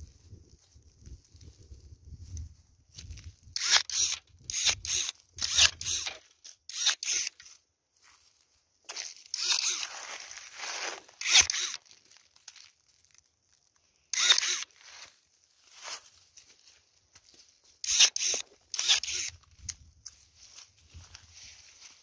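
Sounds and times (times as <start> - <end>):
footsteps crunching on dry leaves: 0.0 - 3.6, 7.4 - 13.8, 14.7 - 17.8, 19.8 - 22.0
leaves rustling: 8.0 - 13.7, 20.1 - 22.0.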